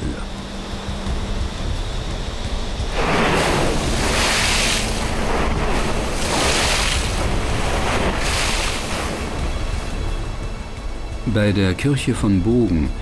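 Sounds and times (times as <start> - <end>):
steady low rumble: 0.0 - 13.0
river water splashing against a barge: 2.5 - 11.2.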